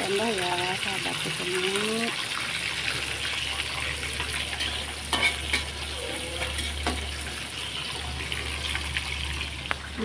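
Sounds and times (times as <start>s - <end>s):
fish sizzling in hot oil: 0.0s - 10.0s.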